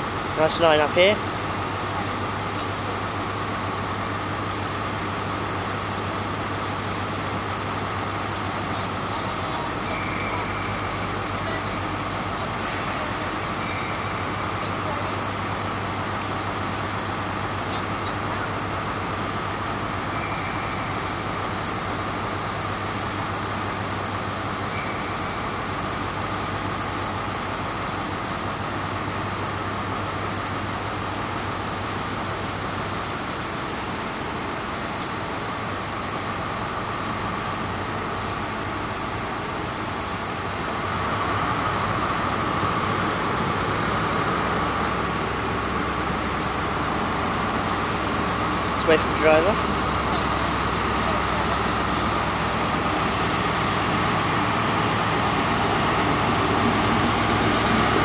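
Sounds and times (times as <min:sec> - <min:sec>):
idling trains: 0:00.0 - 0:58.0.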